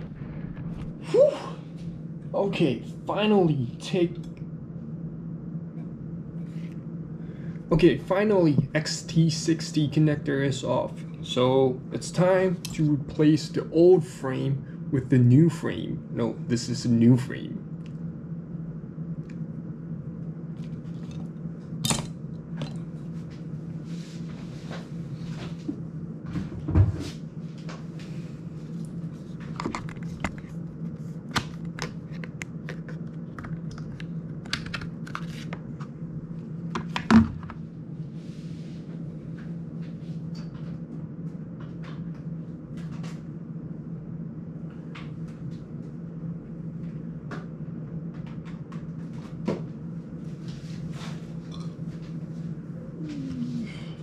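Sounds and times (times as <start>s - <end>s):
loud thumps: 0.0s - 2.3s
steady low hum: 0.0s - 54.0s.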